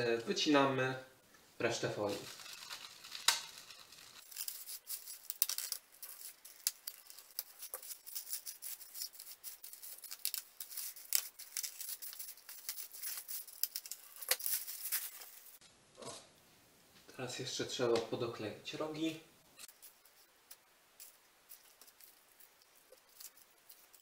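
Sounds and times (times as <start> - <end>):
foil crinkling: 1.9 - 15.6, 21.0 - 24.0
scissors snipping foil: 2.1 - 15.5.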